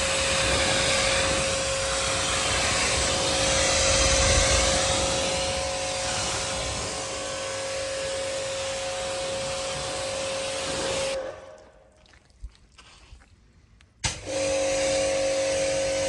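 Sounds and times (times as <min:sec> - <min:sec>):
electric motor whine: 0:00.0 - 0:11.2, 0:14.2 - 0:16.0
loud rush: 0:00.0 - 0:11.4.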